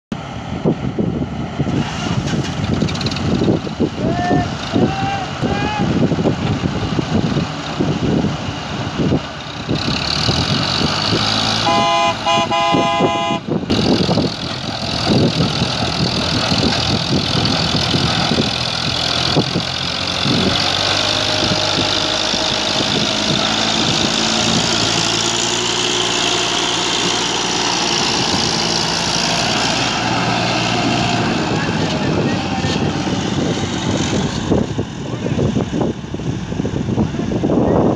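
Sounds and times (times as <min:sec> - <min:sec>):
tractor engine under load: 0:00.2 - 0:37.9
horn blowing: 0:11.6 - 0:13.5.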